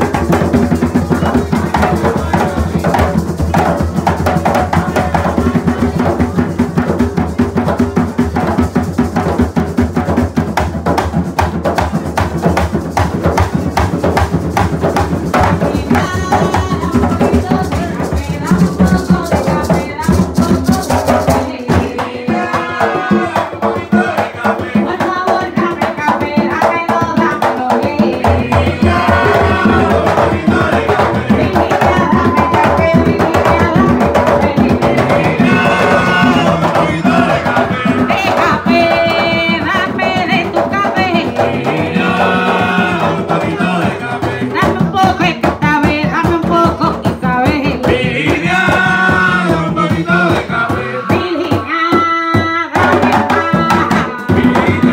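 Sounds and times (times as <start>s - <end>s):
hand drums playing rhythm: 0.0s - 54.9s
person singing: 15.4s - 54.9s.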